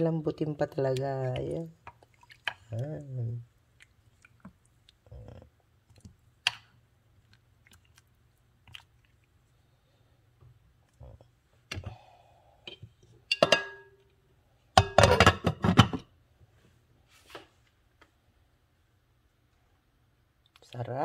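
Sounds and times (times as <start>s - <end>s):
glass clinking: 13.3s - 14.0s.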